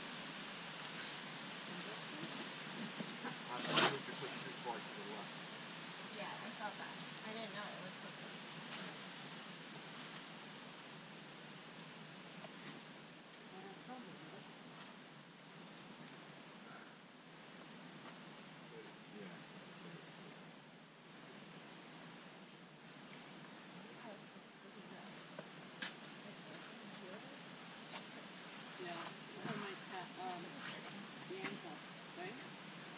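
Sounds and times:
insect buzzing: 0:00.3 - 0:20.0, 0:20.7 - 0:32.9.

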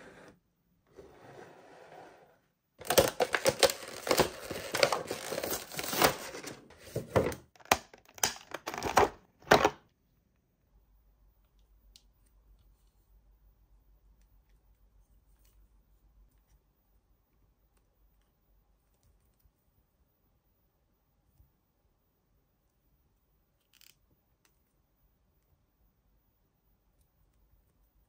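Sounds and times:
packaging crinkling and tearing: 0:02.8 - 0:07.0.

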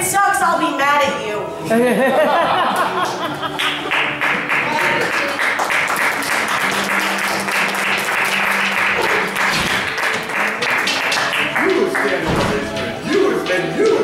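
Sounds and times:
music: 0:00.0 - 0:14.0
audience applauding: 0:02.7 - 0:12.7.

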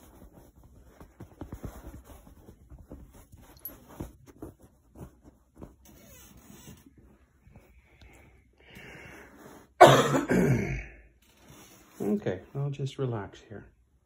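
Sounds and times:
soft taps and thumps on padded chair: 0:00.0 - 0:08.3.

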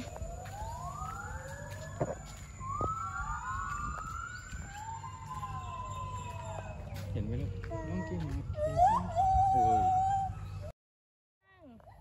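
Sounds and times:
gibbons whooping: 0:07.8 - 0:10.7.

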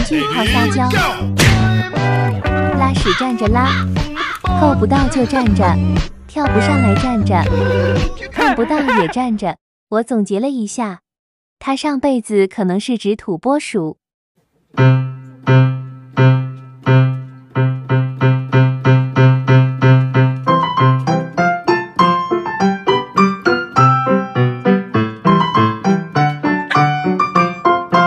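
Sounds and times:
piano music: 0:00.5 - 0:08.0, 0:14.8 - 0:28.0.

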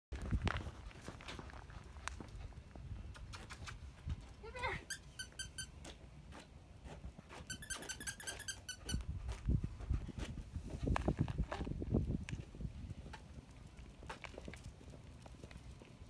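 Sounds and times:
short high squeaks: 0:04.8 - 0:05.8, 0:07.3 - 0:09.1
footsteps on concrete: 0:05.3 - 0:16.0.

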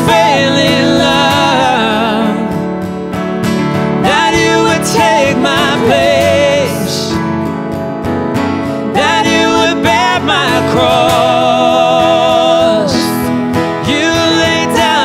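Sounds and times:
woman singing: 0:00.0 - 0:02.7, 0:04.0 - 0:07.2, 0:09.0 - 0:15.0
keyboard: 0:00.0 - 0:15.0
strummed acoustic guitar: 0:00.0 - 0:15.0.

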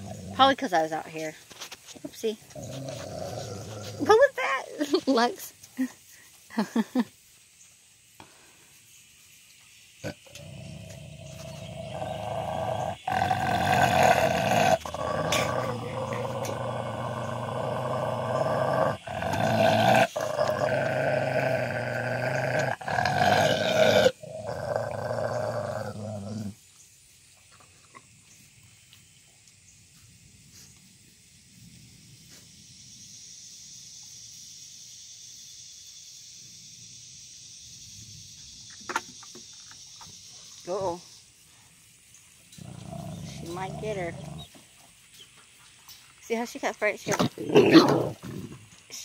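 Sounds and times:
dog growling: 0:00.0 - 0:00.5, 0:02.5 - 0:04.3, 0:10.0 - 0:26.6, 0:42.6 - 0:44.6, 0:47.1 - 0:48.7.

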